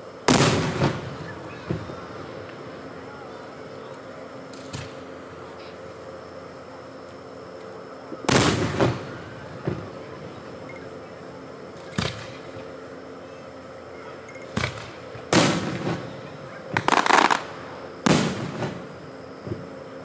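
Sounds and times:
crackling bangs: 0:00.2 - 0:02.0, 0:08.2 - 0:10.0, 0:11.8 - 0:12.7, 0:14.5 - 0:19.7
firework shells booming: 0:00.3 - 0:02.0, 0:08.2 - 0:10.0, 0:14.5 - 0:19.7.

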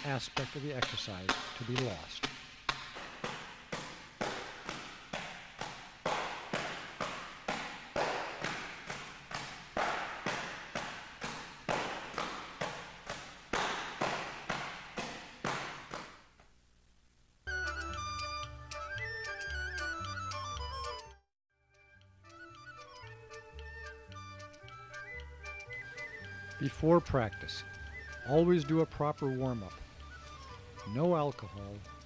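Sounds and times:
open-palm slaps on training bag: 0:00.0 - 0:16.3.

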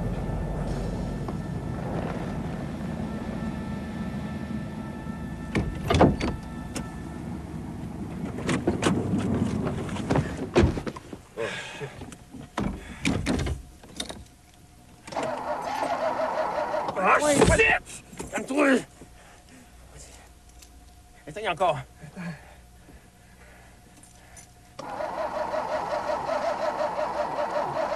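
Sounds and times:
car engine running: 0:00.0 - 0:08.5
sharp knocks and clunks: 0:05.5 - 0:06.4.

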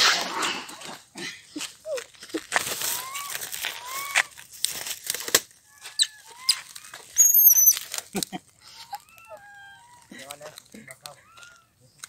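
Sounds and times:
rustling: 0:00.0 - 0:11.6
squeaky animal chirps: 0:05.7 - 0:07.9.

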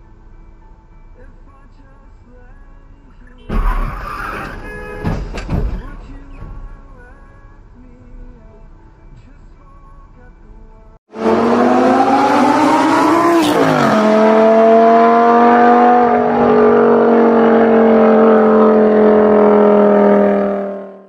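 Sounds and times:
sports car engine accelerating: 0:11.1 - 0:21.0.

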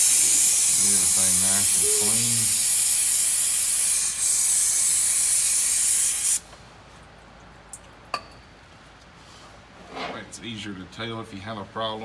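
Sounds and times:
aerosol spray hissing: 0:00.0 - 0:06.4.

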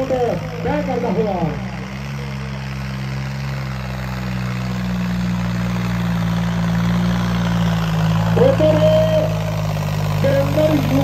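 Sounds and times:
tractor engine under heavy load: 0:00.0 - 0:11.0.

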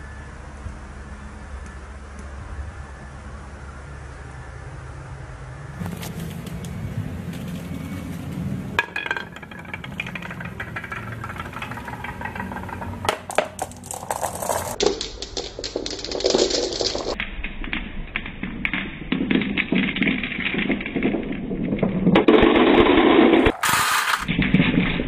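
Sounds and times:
low rolling rumble: 0:06.8 - 0:23.5
glass marbles rolling and clacking: 0:08.8 - 0:25.0.

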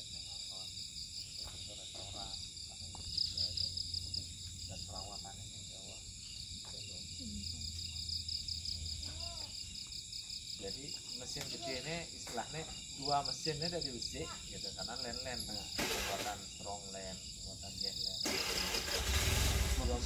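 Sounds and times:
crickets chirping: 0:00.0 - 0:20.0
faint indistinct talking: 0:09.0 - 0:09.7.

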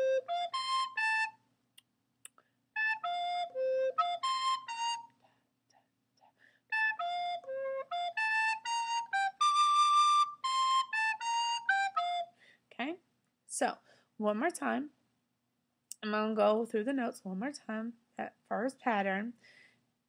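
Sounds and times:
recorder playing short notes: 0:00.0 - 0:01.4, 0:02.8 - 0:05.2, 0:06.7 - 0:12.3.

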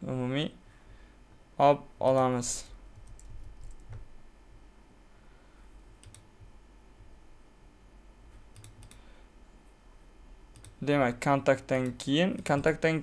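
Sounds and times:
computer keyboard clicks: 0:03.0 - 0:04.0, 0:06.0 - 0:06.3, 0:08.5 - 0:09.0, 0:10.5 - 0:10.8.

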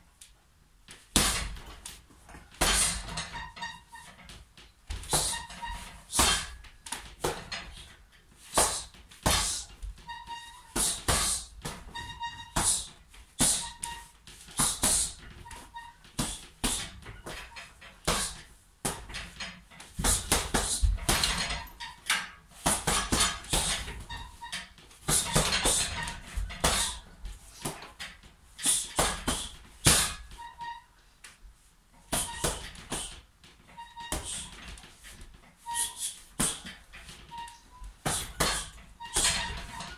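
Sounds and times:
punching bag thuds: 0:01.1 - 0:01.7, 0:02.6 - 0:03.2, 0:06.1 - 0:06.6, 0:08.6 - 0:09.7, 0:10.8 - 0:11.9, 0:20.0 - 0:21.7, 0:22.6 - 0:24.2, 0:28.8 - 0:30.2, 0:38.0 - 0:39.6.

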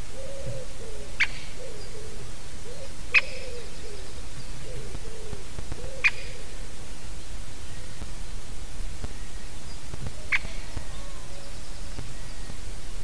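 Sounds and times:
woodpecker calling: 0:10.1 - 0:12.5.

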